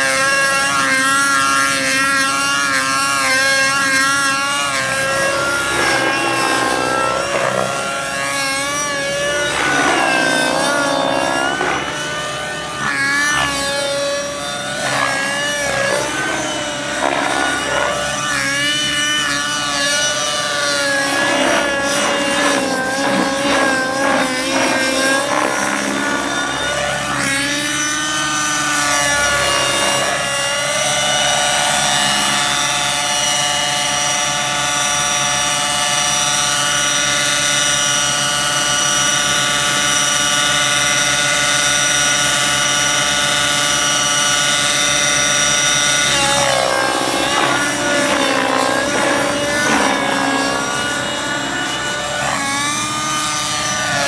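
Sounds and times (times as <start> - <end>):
model helicopter engine and rotor: 0.0 - 54.0.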